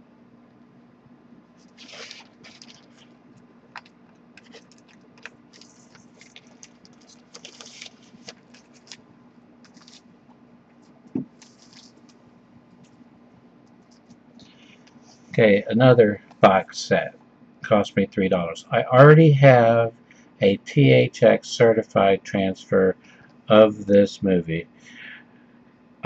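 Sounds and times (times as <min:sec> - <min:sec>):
plastic bag crinkling: 0:01.6 - 0:09.0, 0:09.6 - 0:10.1, 0:11.1 - 0:12.2
dull thump: 0:11.1 - 0:11.4.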